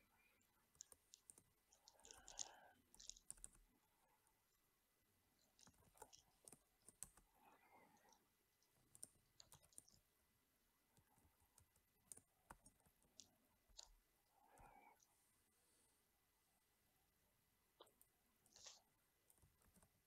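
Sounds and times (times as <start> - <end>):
typing on computer keyboard: 0.7 - 3.6, 8.9 - 10.0.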